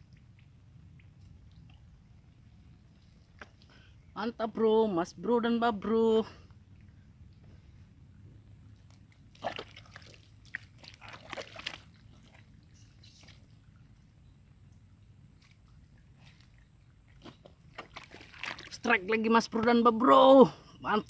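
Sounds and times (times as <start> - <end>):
low steady rumble: 0.0 - 18.4.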